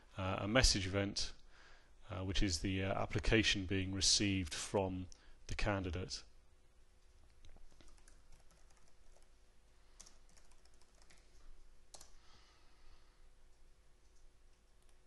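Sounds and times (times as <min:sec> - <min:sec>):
computer keyboard typing: 0:07.3 - 0:09.4, 0:10.0 - 0:12.2.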